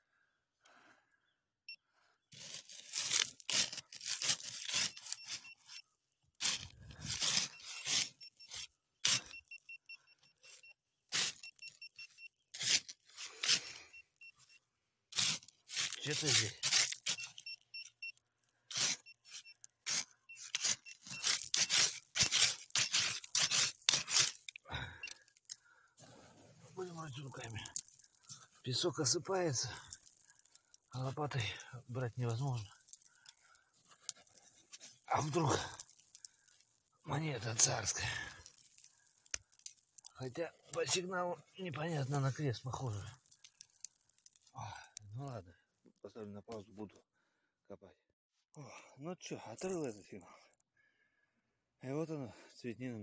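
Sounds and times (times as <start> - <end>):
probe scraping through sand and gravel: 2.3 - 9.6, 10.4 - 14.4, 15.1 - 17.4, 18.7 - 44.5
metal detector beeps: 4.7 - 5.9, 6.8 - 12.4, 13.4 - 14.6, 17.0 - 21.9, 22.7 - 23.2, 24.9 - 25.2
rapid short high beeps: 17.0 - 18.2, 20.3 - 21.8.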